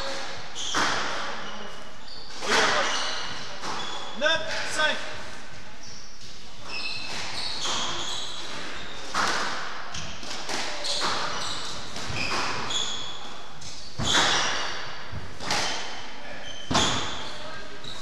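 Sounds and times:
shoes squeaking on wooden floor: 0.0s - 4.3s, 5.8s - 9.4s, 10.0s - 18.0s
squash ball cracking off racquets: 7.1s - 12.9s, 13.7s - 16.0s.

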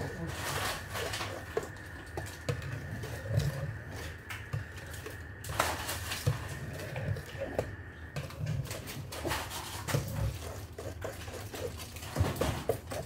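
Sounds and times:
whisk beating batter: 0.0s - 13.0s
whisk tapping metal pot: 7.6s - 13.0s.

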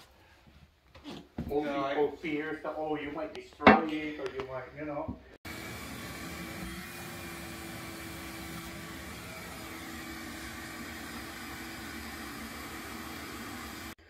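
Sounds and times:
shop vacuum sucking water: 5.4s - 14.0s.

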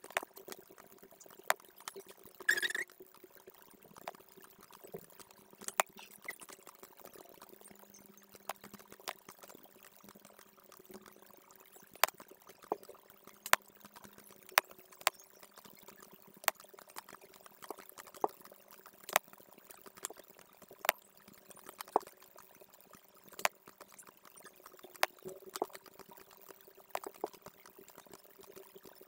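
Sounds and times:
computer mouse clicking: 2.5s - 2.9s.

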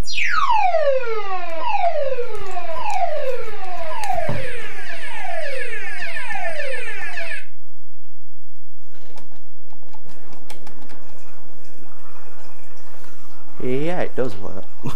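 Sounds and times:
alarm sounder falling sweeps: 0.0s - 7.6s.

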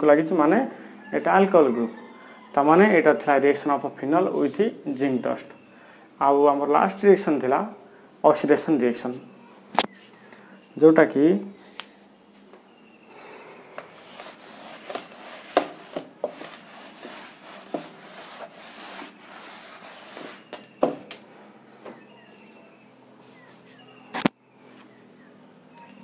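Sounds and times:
cloth rubbing a chalkboard: 4.2s - 5.2s, 13.8s - 21.0s.

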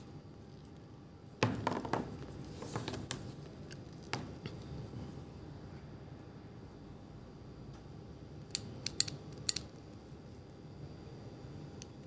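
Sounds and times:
ratchet buckle clicking: 8.5s - 9.7s.

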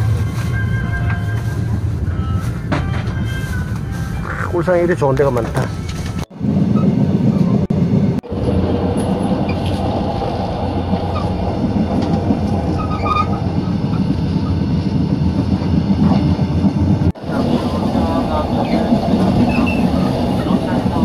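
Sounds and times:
train wheels rumbling on track: 0.0s - 21.0s
clatter between carriages: 17.1s - 21.0s.

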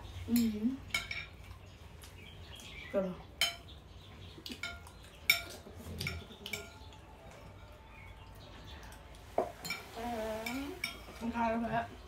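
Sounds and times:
cutlery clinking on plates: 0.4s - 1.6s, 3.4s - 3.7s, 4.4s - 7.8s, 8.9s - 11.3s.

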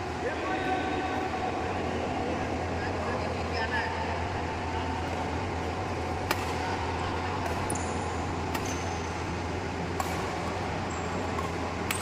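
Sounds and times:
steady low hum: 0.0s - 12.0s
rackets striking shuttlecock: 6.1s - 9.3s, 9.9s - 12.0s.

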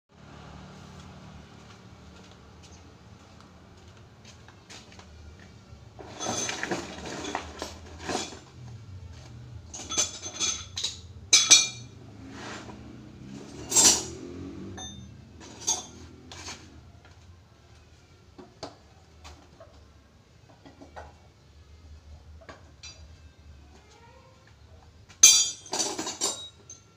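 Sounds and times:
metal tools clanking: 6.0s - 8.8s, 9.6s - 12.0s, 12.6s - 16.7s, 25.2s - 26.9s.

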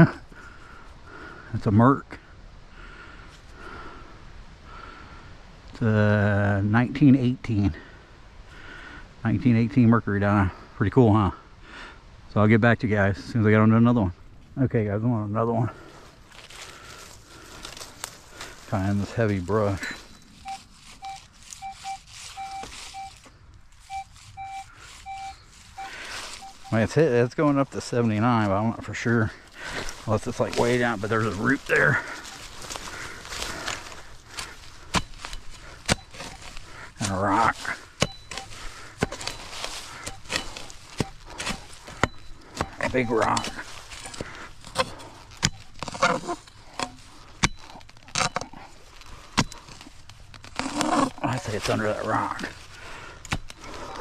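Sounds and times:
metal detector beeps: 19.6s - 27.3s, 29.8s - 33.7s, 35.0s - 48.6s, 53.2s - 54.0s
digging tool chopping into soil: 37.9s - 46.0s, 53.2s - 53.7s.

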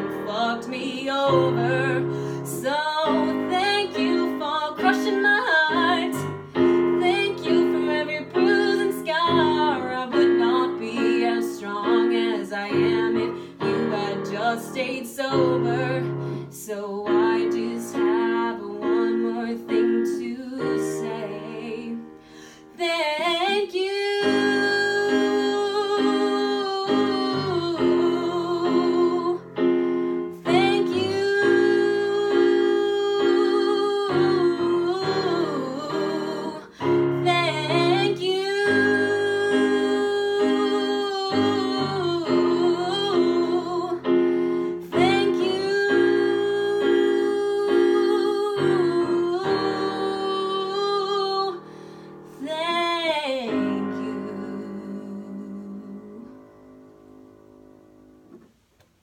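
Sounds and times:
woman singing a ballad: 0.0s - 56.8s
electric keyboard chords: 24.2s - 50.8s.

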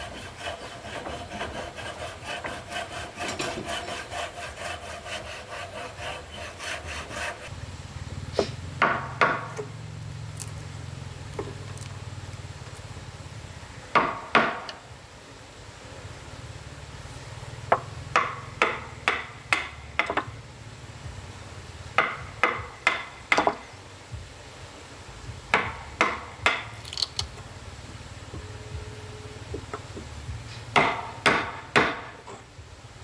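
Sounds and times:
hammer striking wood: 8.8s - 9.6s, 13.9s - 14.8s, 17.7s - 20.3s, 22.0s - 23.6s, 25.5s - 26.7s, 30.7s - 32.2s.

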